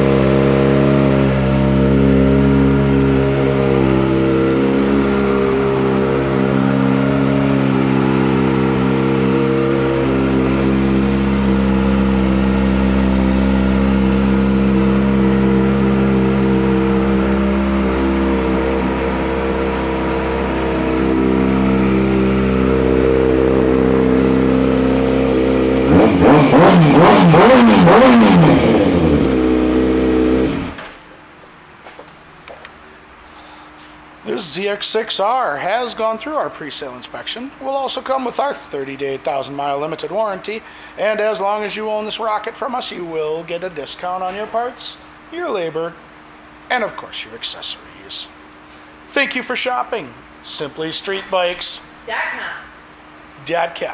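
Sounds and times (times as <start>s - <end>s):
motorcycle engine idling and revving: 0.0s - 30.9s.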